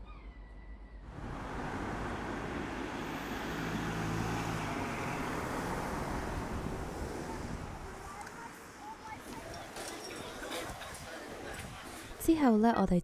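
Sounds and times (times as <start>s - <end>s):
vehicle passing by: 1.1s - 9.2s.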